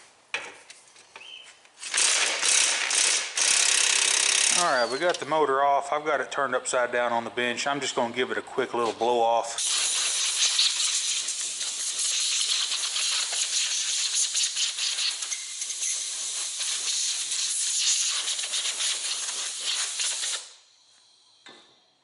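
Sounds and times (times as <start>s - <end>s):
compressed air hiss: 9.6s - 21.3s.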